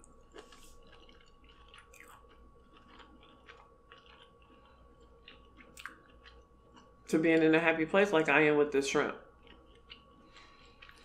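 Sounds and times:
wet chewing: 0.0 - 7.1, 9.4 - 11.0.

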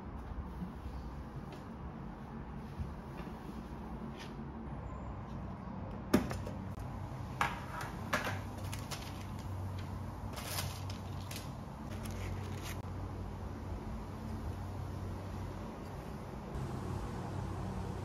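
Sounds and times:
paper liner rustling: 8.5 - 12.8.

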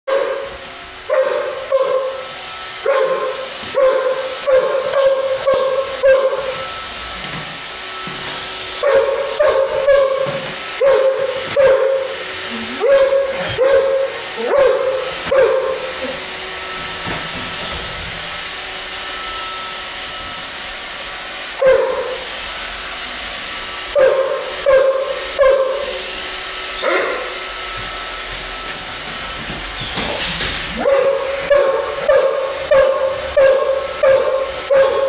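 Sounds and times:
dog barking high-pitched: 0.1 - 6.6, 8.8 - 12.2, 12.8 - 16.2, 21.6 - 22.3, 23.9 - 26.0, 26.8 - 27.4, 30.7 - 35.0.

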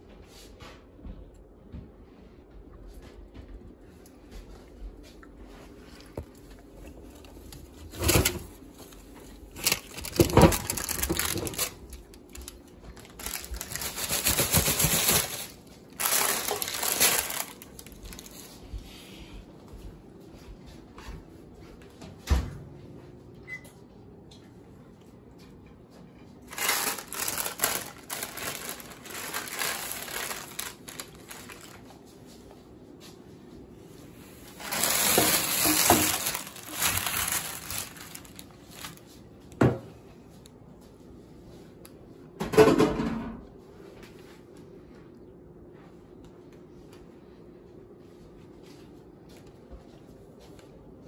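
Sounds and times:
crinkly rustling handling noise: 3.8 - 19.0, 25.4 - 41.7.

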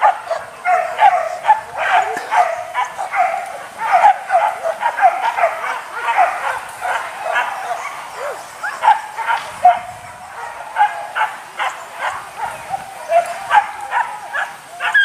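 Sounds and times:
dogs yelping and barking: 0.0 - 15.0.

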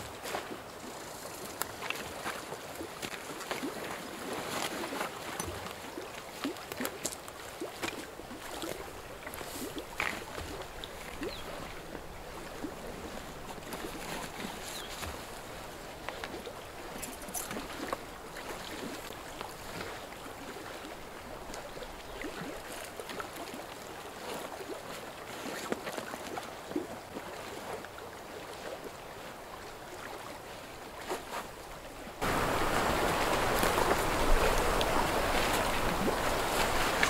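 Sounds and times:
small waves lapping: 0.0 - 37.0
rush of wind: 32.2 - 37.0.

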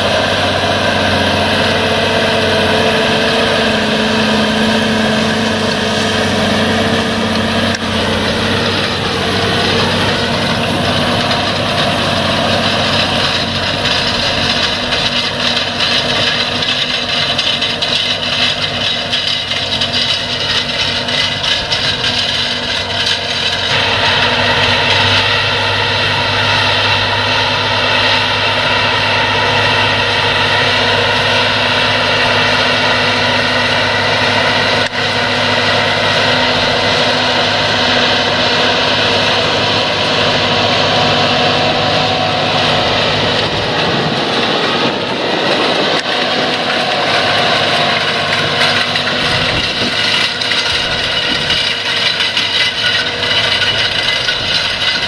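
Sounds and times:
implement working the soil: 0.0 - 55.0
tractor diesel engine under load: 0.0 - 55.0.

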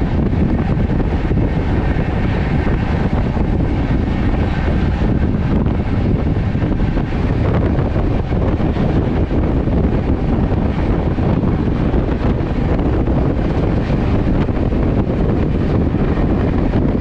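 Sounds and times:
train wheels rumbling on track: 0.0 - 17.0
wind buffeting microphone: 0.0 - 17.0.

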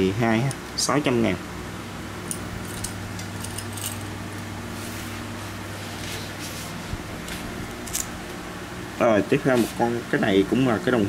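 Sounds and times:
steady low hum: 0.0 - 11.0
metallic clinks of watch chain: 2.3 - 4.1.

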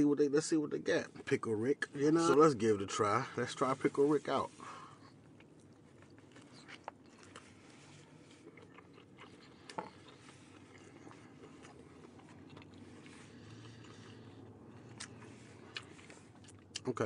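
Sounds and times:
person chewing: 5.0 - 16.9.

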